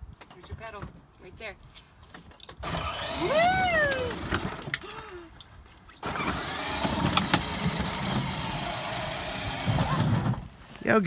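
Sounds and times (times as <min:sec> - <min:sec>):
toy electric motors whirring: 0:02.6 - 0:04.8, 0:06.0 - 0:10.4
person cheering: 0:03.2 - 0:05.3.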